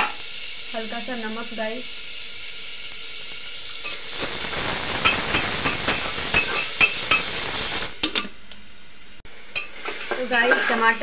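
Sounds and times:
vegetables sizzling in a pot: 0.0 - 11.0.

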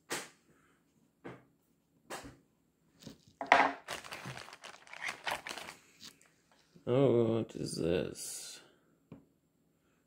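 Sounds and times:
plastic bag crinkling: 3.0 - 6.3.

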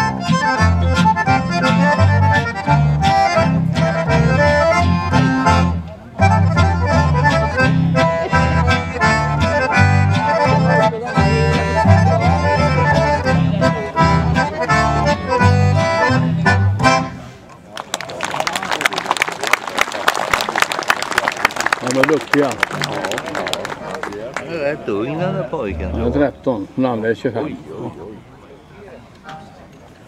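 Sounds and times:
accordions playing: 0.0 - 17.4, 25.1 - 26.8
acoustic guitar: 0.0 - 17.5
double bass: 0.0 - 17.5, 25.0 - 26.8.

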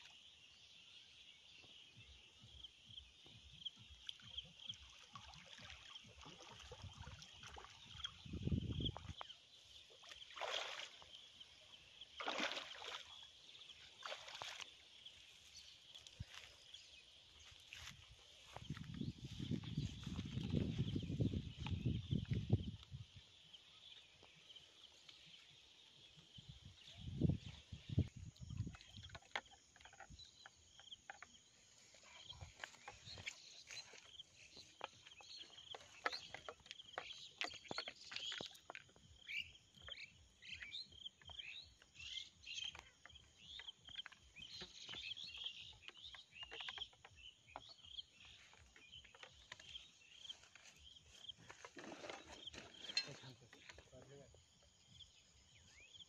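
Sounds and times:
heavy footsteps on grass: 16.2 - 21.9.

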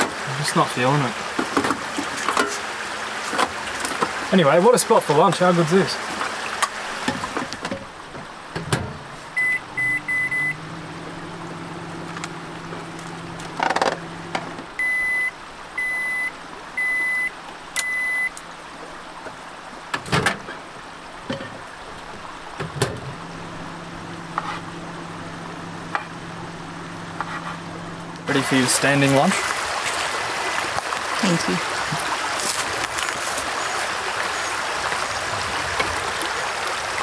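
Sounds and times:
low steady hum: 5.6 - 18.4, 20.1 - 36.6
microwave oven beeping: 9.4 - 11.0, 14.8 - 18.3.

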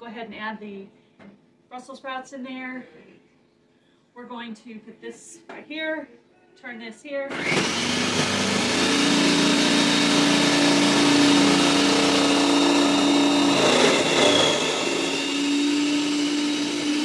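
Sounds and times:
food processor motor running: 7.3 - 17.0.

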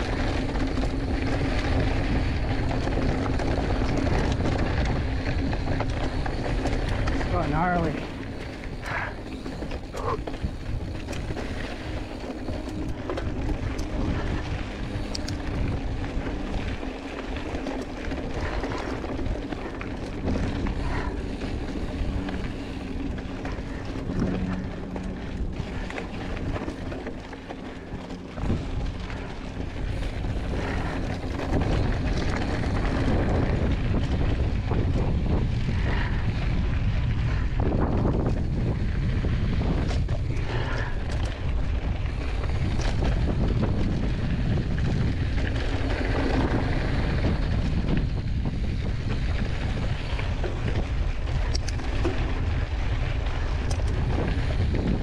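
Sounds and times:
tyres crunching on gravel: 0.0 - 36.1
wind buffeting microphone: 0.0 - 55.0.

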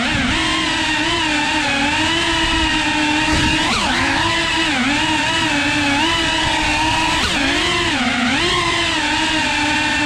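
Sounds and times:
drone motors whining: 0.0 - 10.0.

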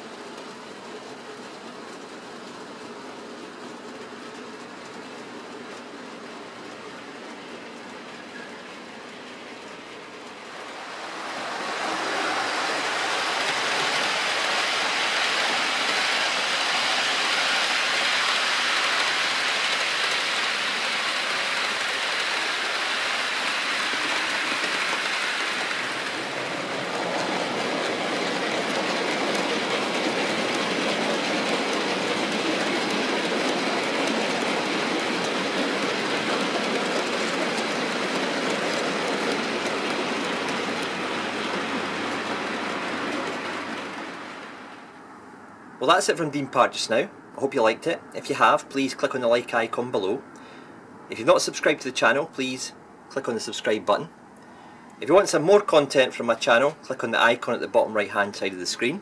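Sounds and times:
model train wheels clattering: 11.5 - 44.6.

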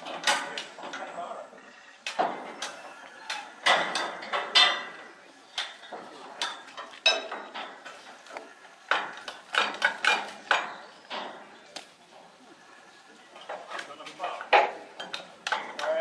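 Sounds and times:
metal clanking on metal: 0.0 - 1.3, 2.1 - 12.2, 13.3 - 16.0.

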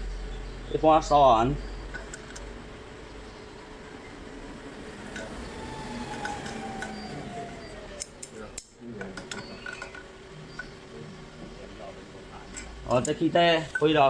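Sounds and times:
faint falling tone: 4.9 - 9.8
clinks of objects handled: 9.0 - 10.8, 12.5 - 14.0.

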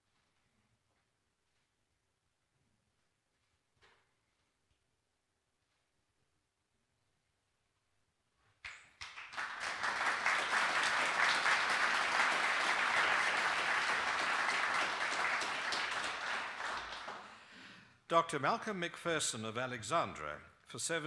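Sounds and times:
audience applauding: 9.0 - 17.7.

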